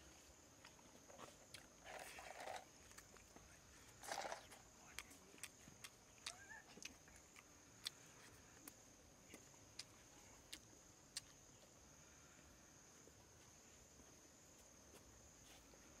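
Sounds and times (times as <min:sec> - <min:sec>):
insects droning: 0:00.0 - 0:16.0.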